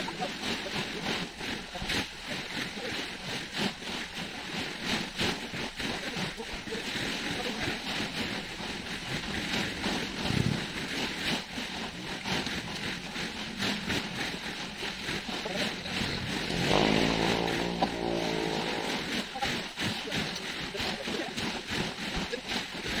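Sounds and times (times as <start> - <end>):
wind: 0.0 - 23.0
crackling: 2.8 - 23.0
motor droning: 12.5 - 19.2.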